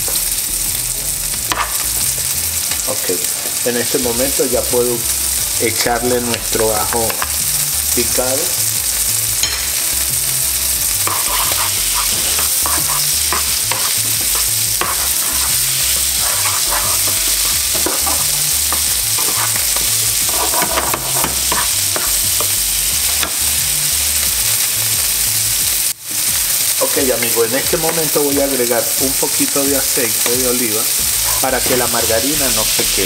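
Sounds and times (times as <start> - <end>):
garlic sizzling in a pan: 0.0 - 33.0
wooden spoon scraping a pan: 10.8 - 23.3, 30.2 - 32.0.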